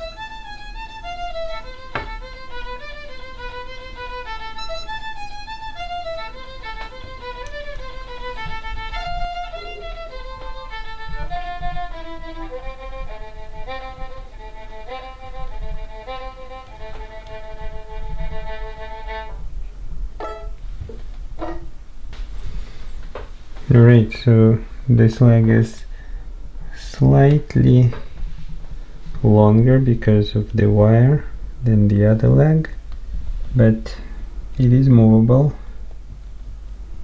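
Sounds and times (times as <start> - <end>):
violin playing lively melody: 0.0 - 19.5, 20.2 - 20.6.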